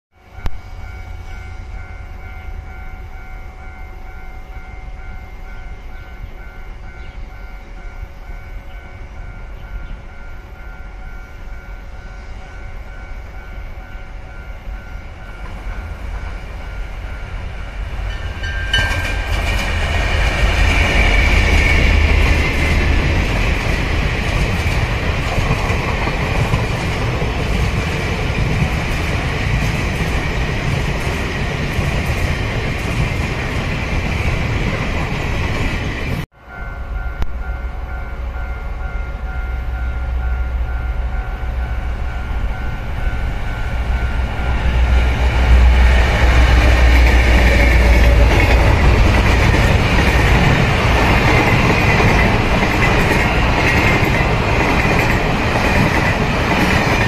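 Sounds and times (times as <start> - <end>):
freight train rumbling: 0.2 - 57.0.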